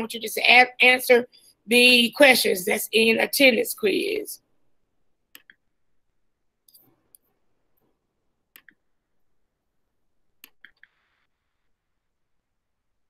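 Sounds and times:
computer mouse clicks: 5.3s - 5.6s, 8.5s - 8.8s, 10.4s - 11.0s.

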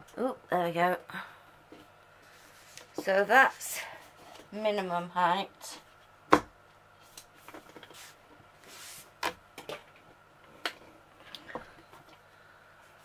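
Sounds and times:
soft rustle: 1.8s - 4.5s, 7.0s - 9.1s.

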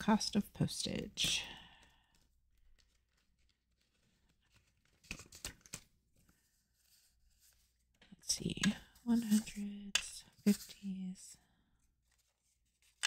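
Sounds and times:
paper banknotes rustling: 1.2s - 7.9s.

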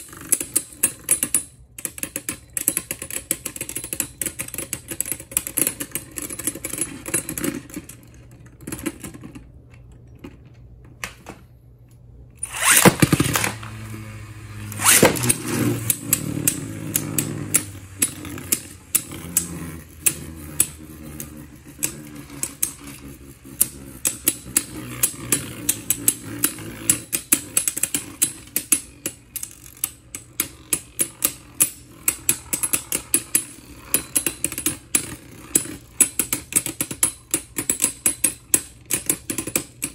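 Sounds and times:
spinning tops launching: 12.4s - 28.5s
spinning whir: 12.4s - 38.4s
spinning tops clicking together: 12.4s - 39.9s.

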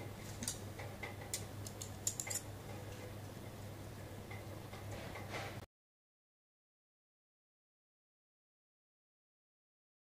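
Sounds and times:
faint steady hum: 0.0s - 5.6s.

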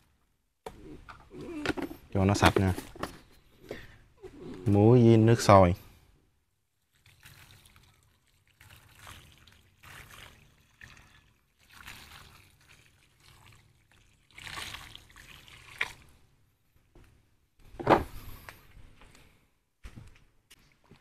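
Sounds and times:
water pouring into basin: 6.8s - 16.1s.

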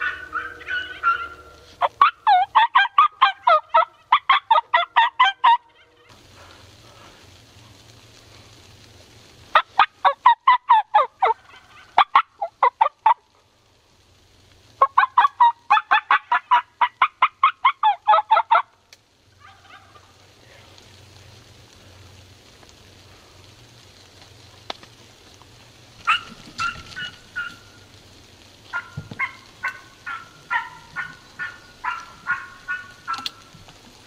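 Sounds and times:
turkey yelping: 0.0s - 6.2s, 9.5s - 13.2s, 14.8s - 20.2s, 26.0s - 28.0s, 28.7s - 33.6s.

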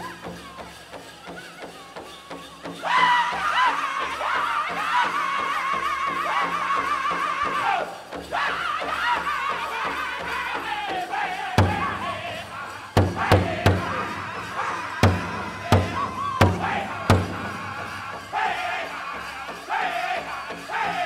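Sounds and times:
group singing in high voices: 2.7s - 21.0s
loud big drum strikes: 11.6s - 18.6s.

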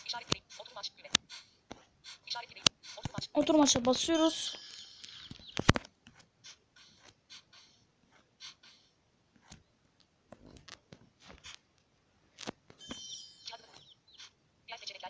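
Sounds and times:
tablet taps and clicks: 0.1s - 7.7s.

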